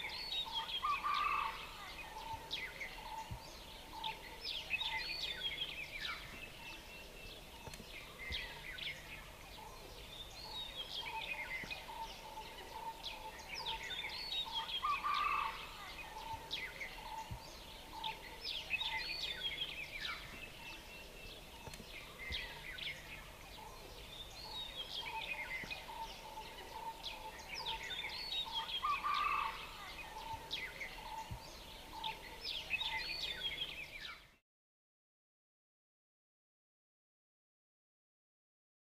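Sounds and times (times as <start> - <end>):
birds chirping: 0.0 - 34.4.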